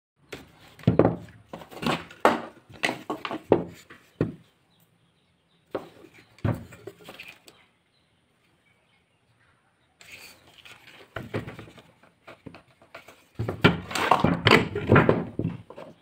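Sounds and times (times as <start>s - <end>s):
knocks and thuds on wood: 0.3s - 4.5s, 5.7s - 7.2s, 11.1s - 16.0s.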